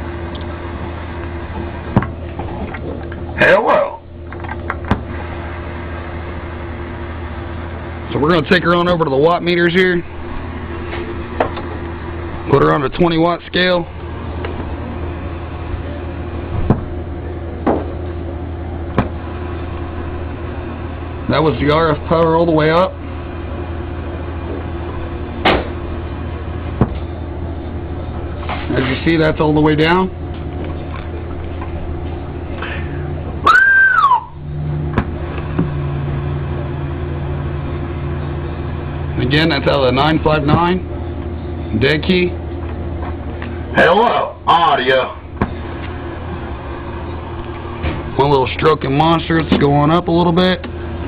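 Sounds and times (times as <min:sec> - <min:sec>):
low electrical hum: 0:00.0 - 0:51.0
short rising and falling whistle: 0:33.4 - 0:34.5.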